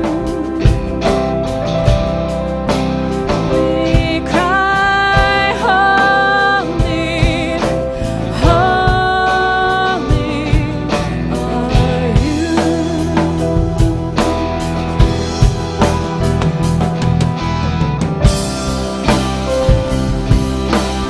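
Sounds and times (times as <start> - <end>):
woman singing slow melody: 0.0 - 1.3, 3.5 - 14.2
bass: 0.0 - 21.0
drum kit: 0.0 - 21.0.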